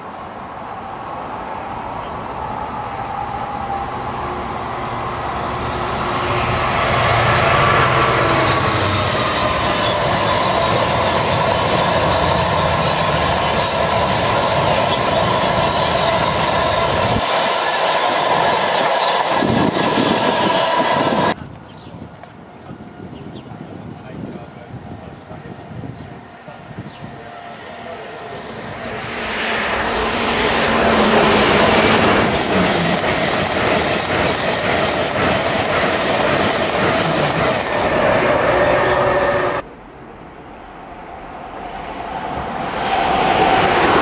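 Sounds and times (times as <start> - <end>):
train passing: 0.0 - 44.0.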